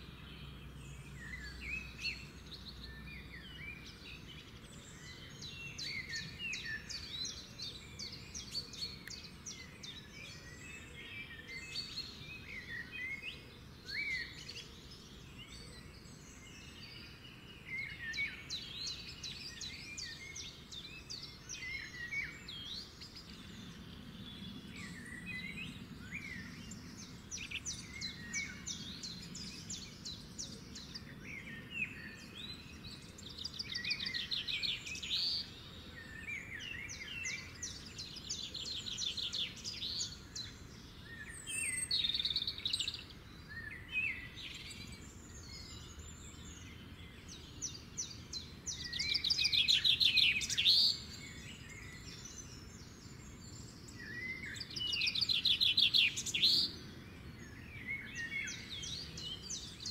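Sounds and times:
songbirds singing and trilling: 0.0 - 59.9.

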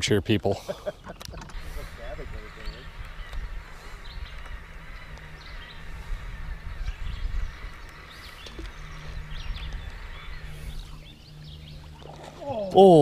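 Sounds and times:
small birds chirping: 0.8 - 13.0
wind rumble on microphone: 1.5 - 12.3.

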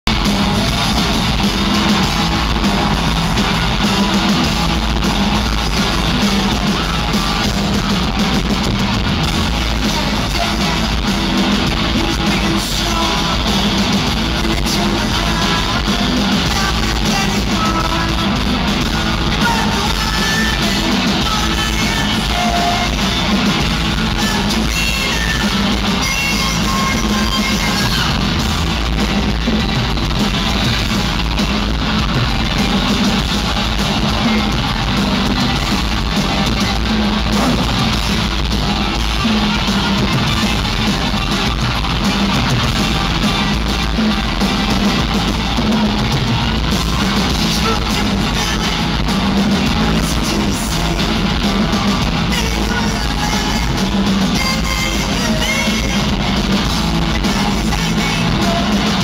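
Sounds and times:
drums: 0.0 - 59.0
electric guitars: 0.0 - 59.0
live rock band playing: 0.0 - 59.0
man singing: 9.5 - 18.6, 19.2 - 28.3, 47.4 - 59.0.

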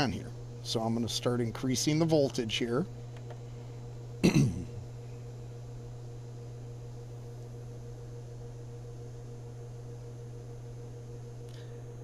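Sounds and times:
low electrical hum: 0.0 - 12.0
person clearing throat: 4.2 - 4.9.

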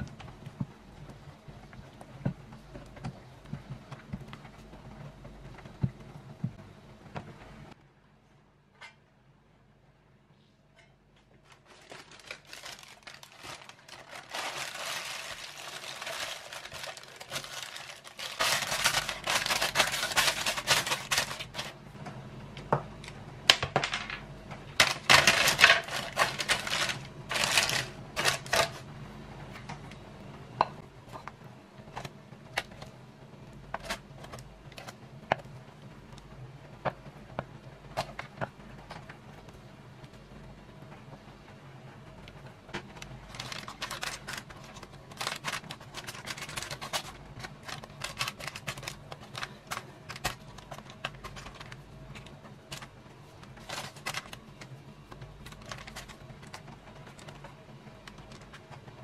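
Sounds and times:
parchment paper crinkling: 11.3 - 21.8, 24.8 - 28.8, 42.9 - 59.0.

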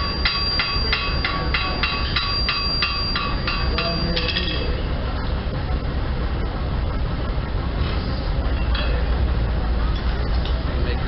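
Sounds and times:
hammer striking iron on anvil: 0.0 - 4.8
steady low rumble: 0.0 - 11.0.

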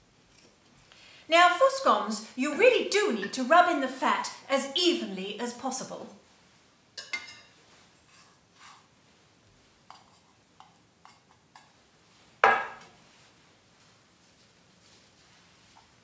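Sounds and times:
bowl knocking down on board: 12.4 - 12.8.

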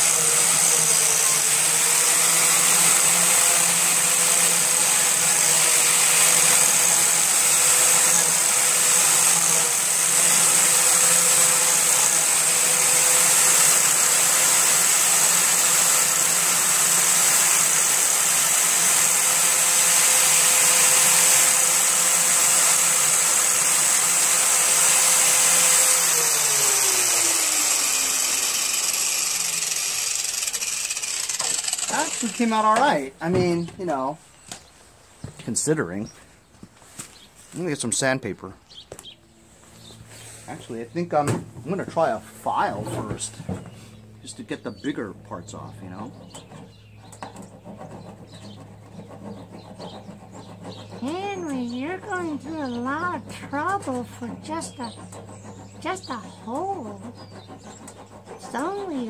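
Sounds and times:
angle grinder sanding plastic: 0.0 - 33.9, 45.8 - 59.0.

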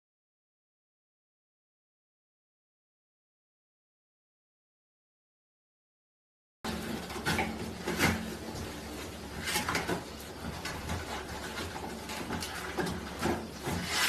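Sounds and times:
paper roll rattling on holder: 6.7 - 14.0
toilet paper rustling and tearing: 6.7 - 14.0.

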